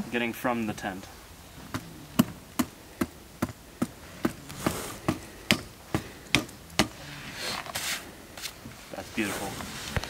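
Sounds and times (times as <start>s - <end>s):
short rustle: 7.1s - 10.0s.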